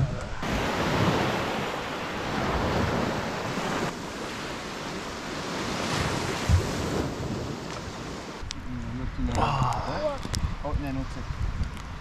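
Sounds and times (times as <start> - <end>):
wind buffeting microphone: 0.0 - 12.0
small waves washing on sand: 0.4 - 8.4.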